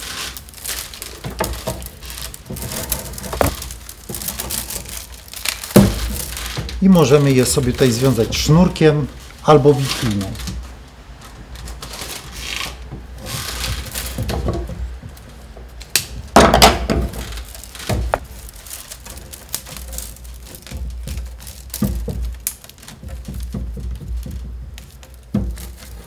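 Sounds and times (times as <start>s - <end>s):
rustling and creaking of rods: 0.0s - 26.0s.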